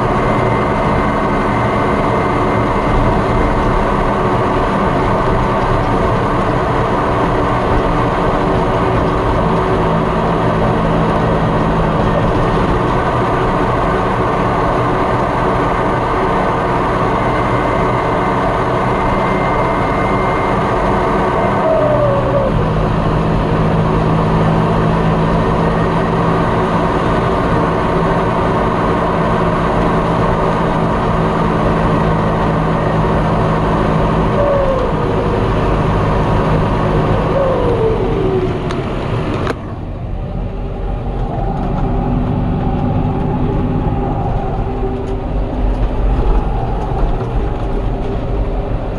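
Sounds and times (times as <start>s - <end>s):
tractor engine running: 0.0s - 48.9s
short falling whine: 16.8s - 23.3s, 33.9s - 48.9s
high turbo whistle: 17.0s - 22.8s.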